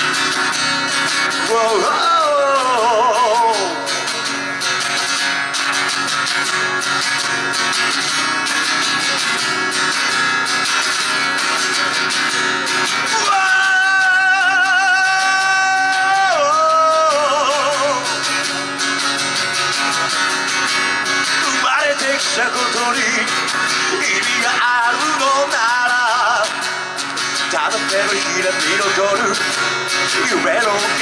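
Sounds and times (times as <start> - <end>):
man singing: 0.0 - 4.4, 11.6 - 18.9, 21.0 - 31.0
acoustic guitar: 0.0 - 31.0.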